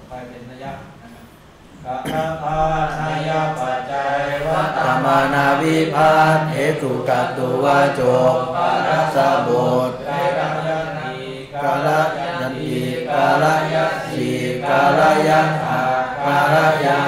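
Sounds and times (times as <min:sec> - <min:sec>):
voices chanting: 0:01.8 - 0:17.0.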